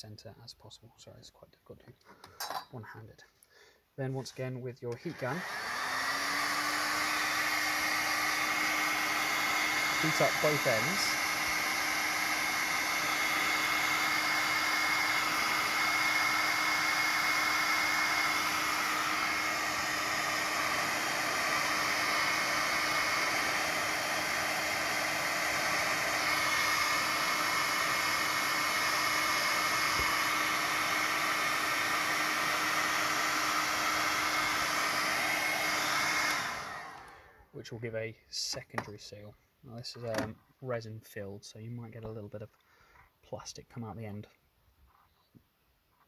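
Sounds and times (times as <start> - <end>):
heat gun blowing air: 4.9 - 37.5.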